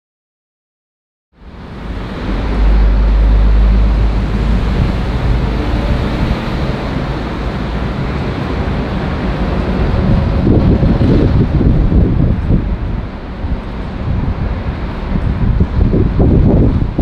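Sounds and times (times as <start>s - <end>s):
deep low rumble: 1.4s - 17.0s
street traffic: 1.4s - 17.0s.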